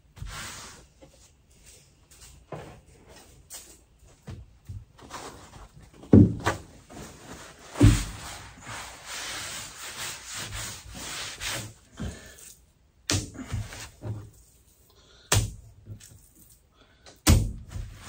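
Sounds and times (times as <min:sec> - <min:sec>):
paper towel rubbing on wood: 0:07.3 - 0:11.8.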